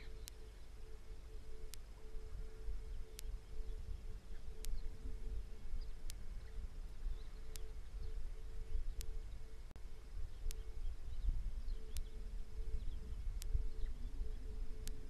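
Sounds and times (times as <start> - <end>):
sharp thin tick: 0.0 - 0.5, 2.9 - 6.6, 7.5 - 7.9, 10.4 - 10.7, 11.9 - 12.2, 12.8 - 13.9, 14.8 - 15.0
faint high chirps: 0.0 - 15.0
low rumble of wind: 0.0 - 15.0
pulsing insect hum: 0.0 - 15.0.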